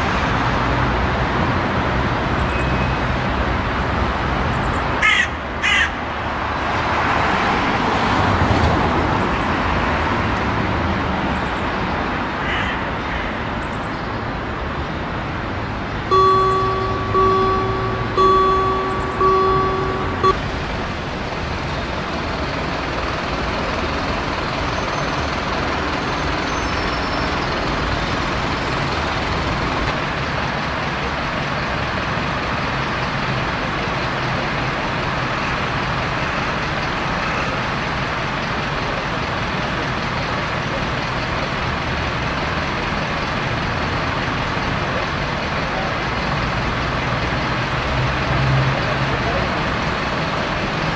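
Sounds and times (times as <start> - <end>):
pitched beeps: 16.1 - 20.4
diesel locomotive idling: 16.1 - 50.9.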